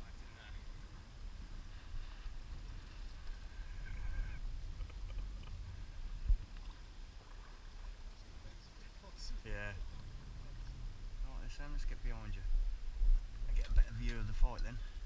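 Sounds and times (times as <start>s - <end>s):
sea around a boat: 0.0s - 11.7s
wind: 0.0s - 15.0s.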